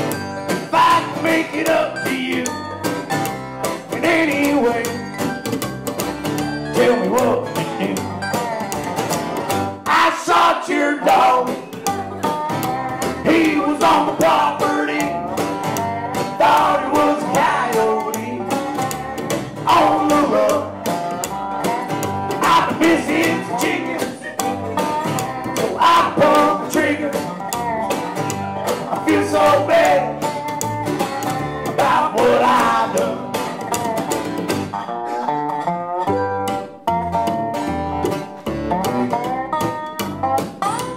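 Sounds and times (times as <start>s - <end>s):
bending melodic lead line: 0.0s - 9.8s
acoustic guitars strumming: 0.0s - 40.9s
plucked upright bass: 0.0s - 40.9s.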